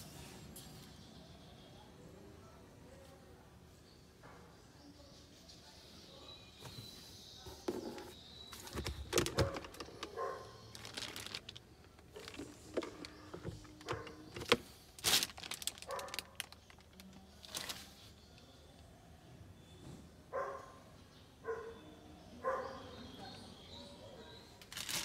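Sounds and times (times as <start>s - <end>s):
glovebox opening and shutting: 7.7s - 10.2s, 12.2s - 14.7s.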